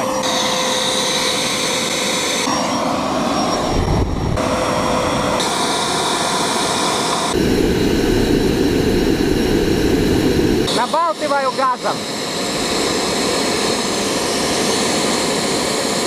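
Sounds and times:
jet engine rush and whine: 0.0 - 16.0.

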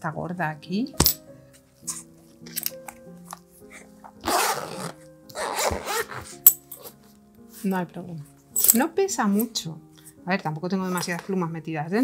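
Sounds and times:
soft background music: 0.0 - 12.0
zipper being pulled: 3.7 - 7.0.

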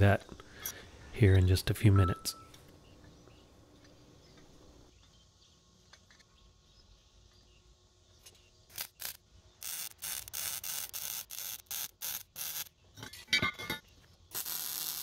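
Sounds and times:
welder arc crackling: 8.7 - 12.7, 14.3 - 15.0.

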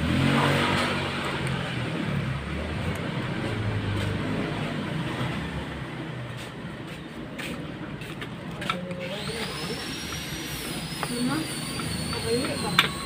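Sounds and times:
screwdriver turning screw: 8.6 - 13.0.

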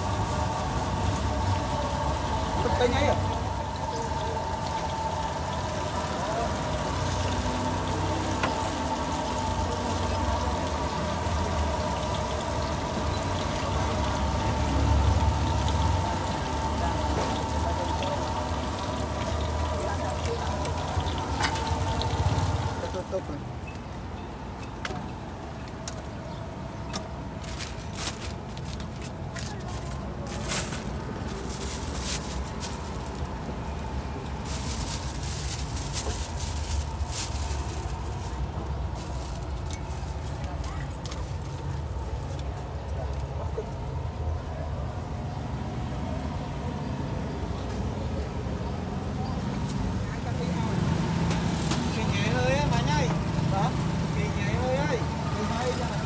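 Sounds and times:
food deep-frying in oil: 0.0 - 23.9, 28.8 - 56.0
low traffic rumble: 0.0 - 56.0.

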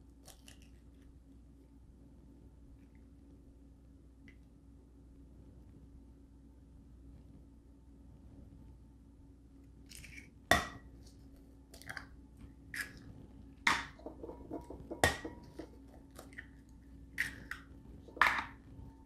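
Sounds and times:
eggshell clinking on bowl: 13.7 - 15.8.

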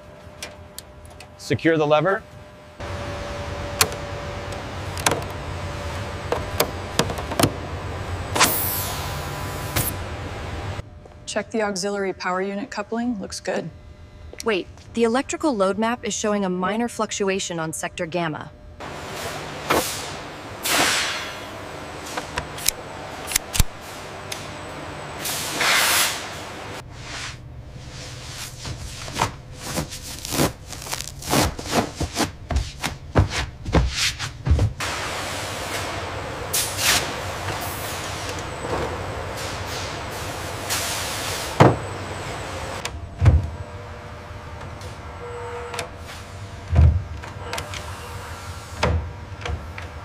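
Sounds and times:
low machine hum: 0.0 - 50.0
panel clicks and knocks: 4.9 - 5.4, 6.3 - 7.6.

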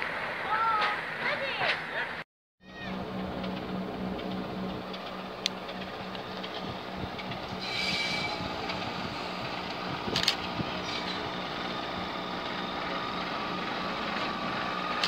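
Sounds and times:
diesel locomotive engine hum: 0.0 - 15.0
train wheel squeal: 5.6 - 13.6.

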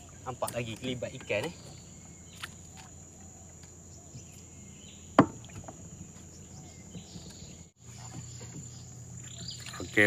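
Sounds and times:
crickets droning: 0.0 - 10.0
knock against boat: 5.2 - 5.8.

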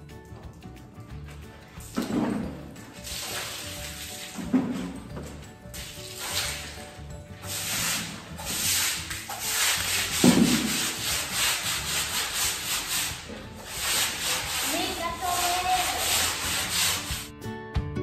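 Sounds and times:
broom scrubbing wet tiled floor: 1.1 - 17.3
water splash: 1.9 - 5.0, 5.7 - 6.9.

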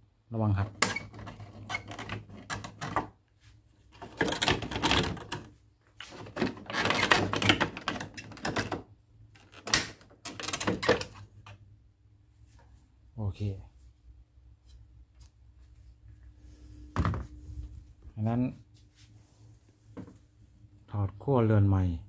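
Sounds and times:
plastic panel clicking and rattling: 4.0 - 5.6, 6.2 - 11.6.

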